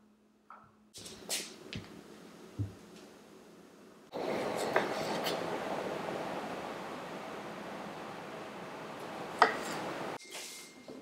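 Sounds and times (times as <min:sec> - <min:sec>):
steady hiss: 0:04.0 - 0:10.7.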